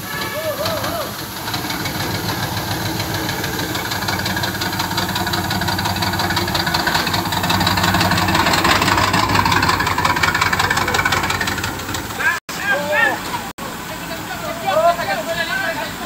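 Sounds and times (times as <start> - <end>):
diesel truck engine running: 0.0 - 12.4.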